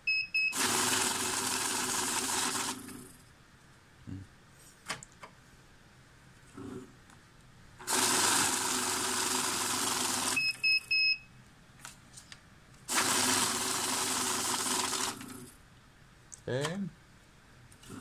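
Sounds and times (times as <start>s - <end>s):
bill counter motor whirring: 0.5s - 3.0s, 7.8s - 10.4s, 12.9s - 15.5s
quick beeps: 10.4s - 11.3s.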